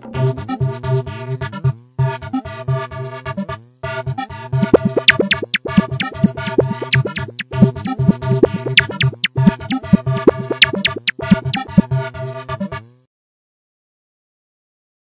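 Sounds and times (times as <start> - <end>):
electronic ringtone tune: 4.6 - 11.8.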